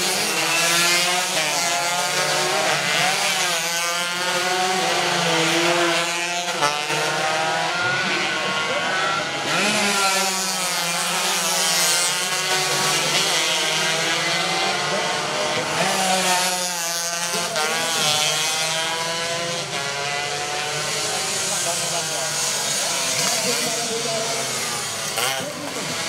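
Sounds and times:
race motorcycles at high revs: 0:00.0 - 0:26.0.

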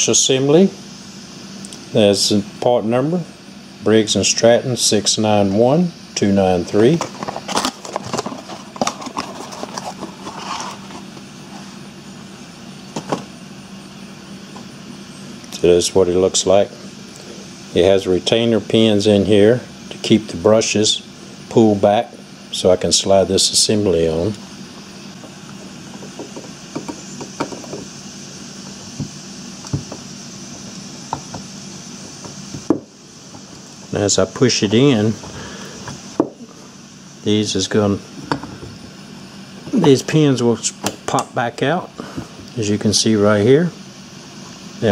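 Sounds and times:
faint steady hum: 0:00.0 - 0:44.9
cardboard rustle: 0:07.1 - 0:11.7.

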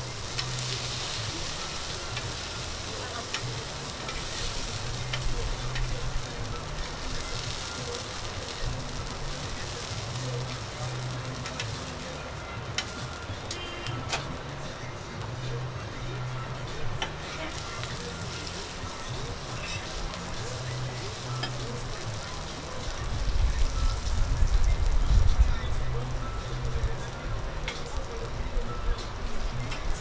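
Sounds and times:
meat sizzling on a griddle: 0:00.0 - 0:30.0.

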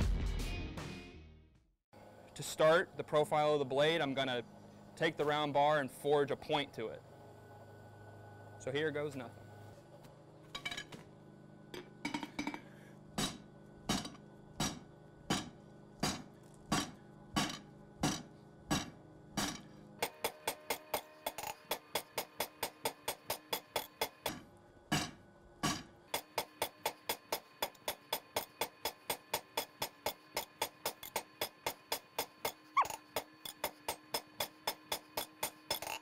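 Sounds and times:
hammer striking steel on anvil: 0:13.2 - 0:25.9.

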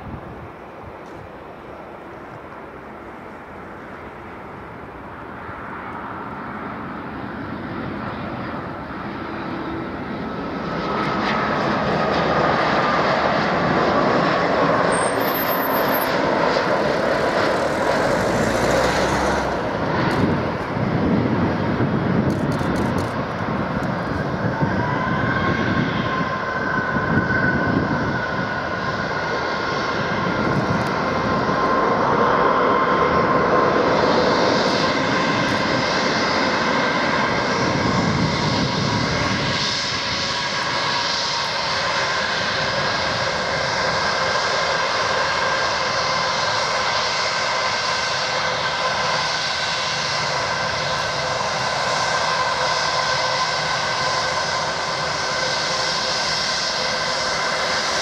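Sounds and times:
jet engines idling high whine: 0:00.0 - 0:58.0
jet engines whining: 0:00.2 - 0:58.0
airplane touchdown rumble: 0:10.7 - 0:45.5.

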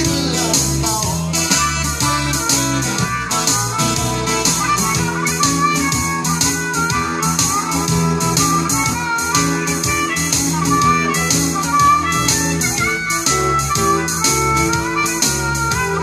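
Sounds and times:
acoustic guitar strumming: 0:00.0 - 0:16.0
amplified harmonica melody: 0:00.0 - 0:16.0.

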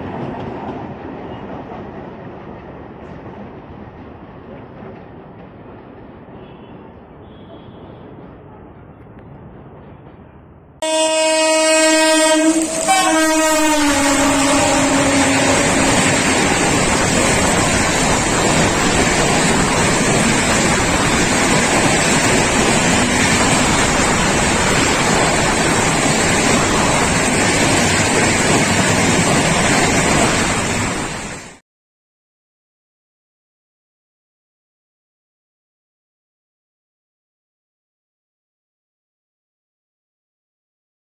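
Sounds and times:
train horn: 0:06.4 - 0:08.1, 0:10.8 - 0:16.4.

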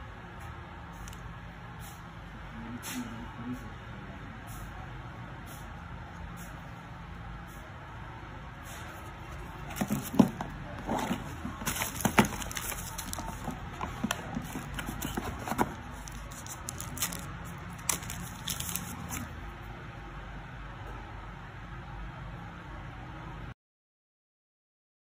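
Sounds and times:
cardboard box clicks and rustles: 0:09.3 - 0:19.3.

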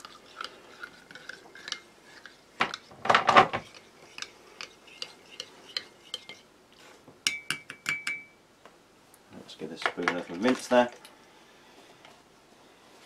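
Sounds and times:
spoon clinking in ceramic mug: 0:07.3 - 0:08.4.

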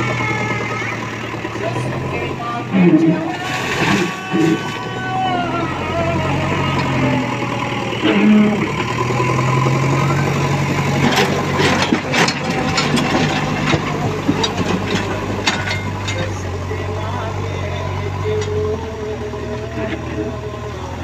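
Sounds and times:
diesel engine running: 0:00.0 - 0:21.0
stones and rubble clattering: 0:11.0 - 0:16.4.

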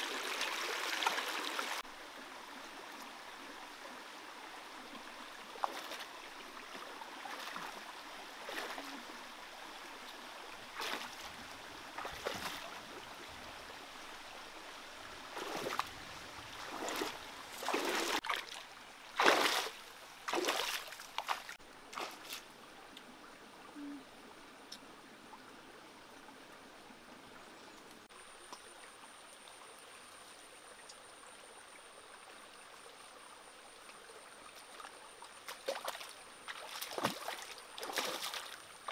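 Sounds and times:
stream trickling: 0:00.0 - 0:38.9
splashing steps in water: 0:05.6 - 0:06.1, 0:06.7 - 0:07.8, 0:08.4 - 0:09.0, 0:10.7 - 0:11.4, 0:12.0 - 0:12.8, 0:15.3 - 0:15.9, 0:16.6 - 0:18.6, 0:19.2 - 0:22.4, 0:34.7 - 0:38.9.

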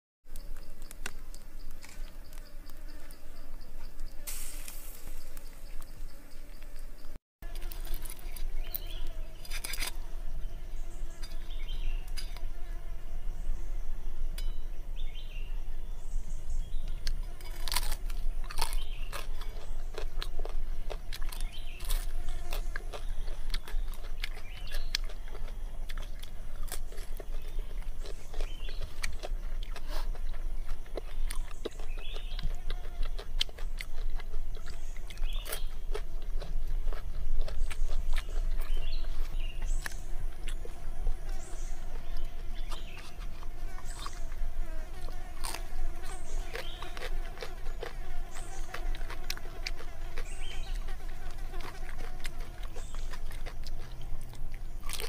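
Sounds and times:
crisp chewing crunches: 0:07.4 - 0:10.0, 0:16.8 - 0:55.0.

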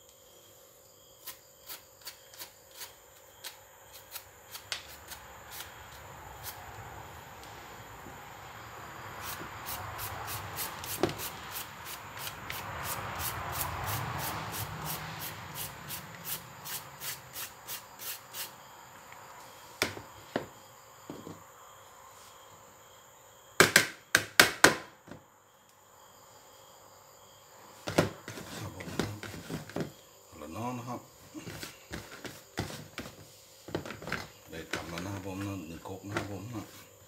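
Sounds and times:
peeler scraping mango: 0:01.2 - 0:06.6.

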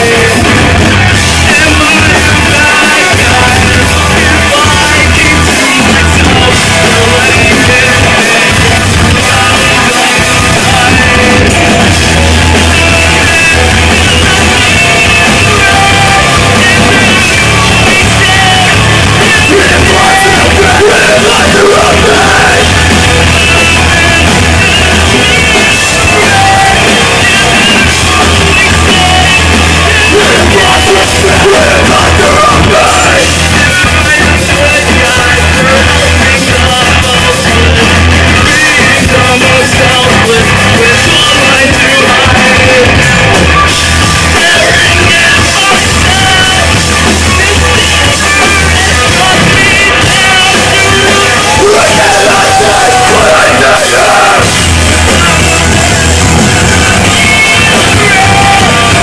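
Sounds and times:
loud live rock band: 0:00.0 - 0:59.0
person yelling vocals: 0:19.4 - 0:22.8, 0:50.4 - 0:54.5.

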